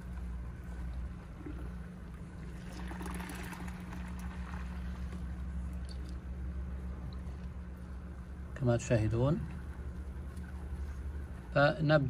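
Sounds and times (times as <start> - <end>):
steady low hum: 0.0 - 12.0
liquid gurgling into a jar: 1.3 - 6.2.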